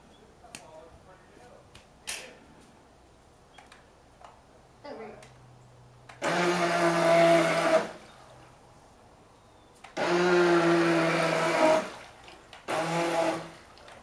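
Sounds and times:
toy boat electric motor whining: 6.2s - 8.0s, 10.0s - 12.0s, 12.6s - 13.7s.

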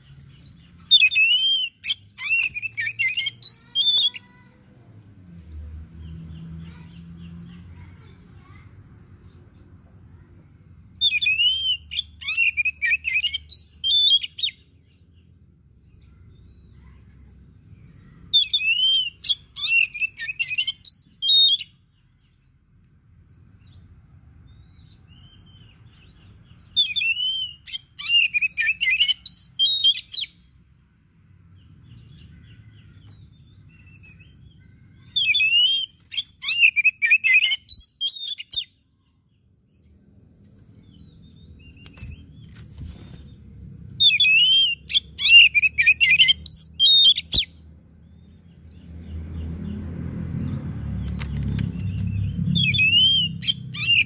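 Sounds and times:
bird singing whistled notes: 0.0s - 4.4s, 10.9s - 15.1s, 17.8s - 21.8s, 24.5s - 30.4s, 31.6s - 38.9s, 44.0s - 49.8s, 50.4s - 54.0s.

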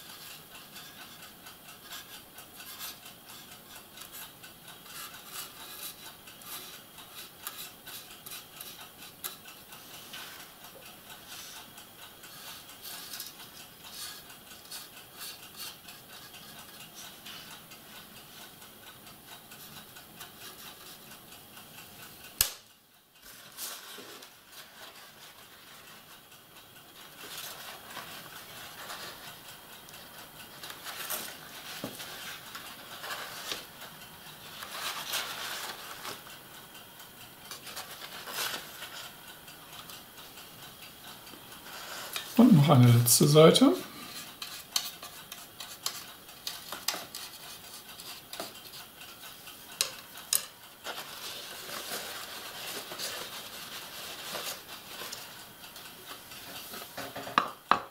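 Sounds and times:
paintbrush scratching: 50.8s - 55.3s
paper towel crinkling: 50.8s - 55.4s.

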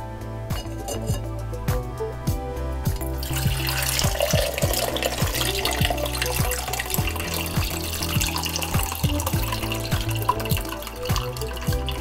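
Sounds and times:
background music with a beat: 0.0s - 12.0s
stock pouring through a sieve: 3.0s - 12.0s.

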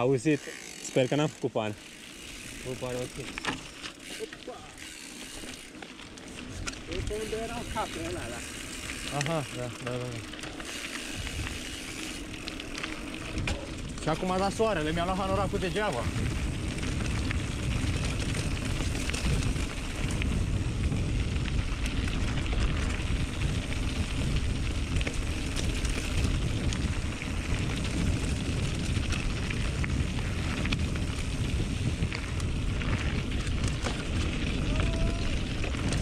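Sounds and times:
bike clicks and rattles: 0.0s - 36.0s
tyres rumbling on dirt trail: 0.0s - 36.0s
wind on microphone: 14.8s - 36.0s.

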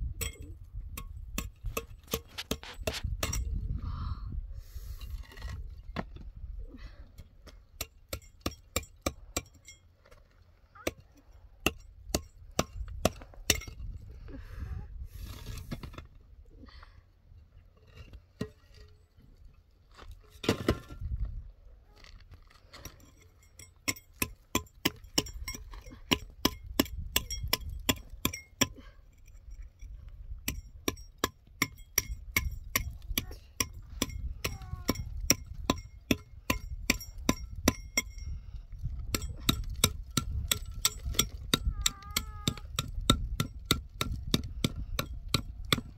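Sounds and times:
scraping on concrete: 2.1s - 3.2s, 15.1s - 16.2s.

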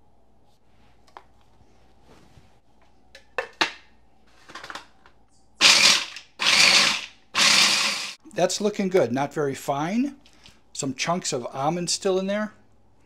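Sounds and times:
food processor pulsing: 5.6s - 8.2s.

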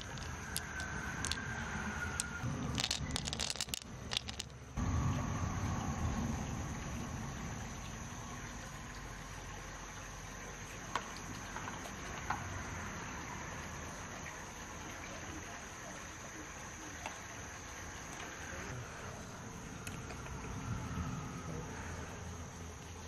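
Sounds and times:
shells clicking on rock: 0.0s - 1.5s, 2.2s - 4.6s
insects chirring: 0.0s - 23.0s.

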